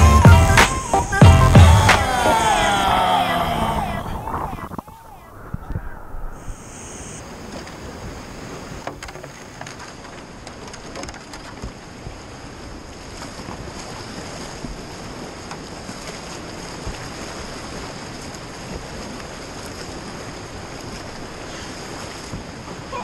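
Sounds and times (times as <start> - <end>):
whitewater rushing: 0.0 - 9.1.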